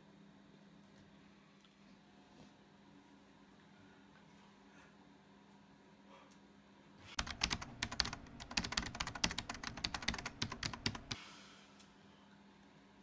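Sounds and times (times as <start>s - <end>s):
fast sharp clicks: 7.2s - 11.2s.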